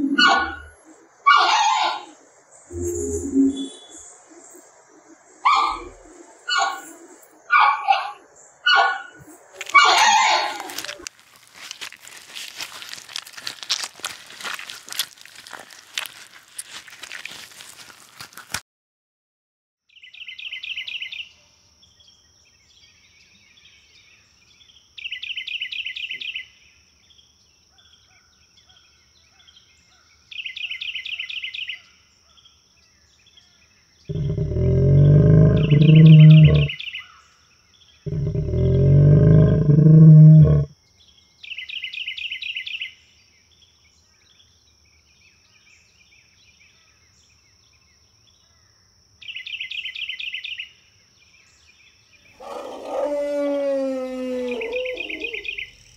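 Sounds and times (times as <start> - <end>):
bird trill: 1.3 - 4.1, 34.1 - 37.1
high-pitched whine: 2.7 - 4.1
dinosaur roars: 34.1 - 36.8, 38.1 - 40.7, 52.4 - 55.6.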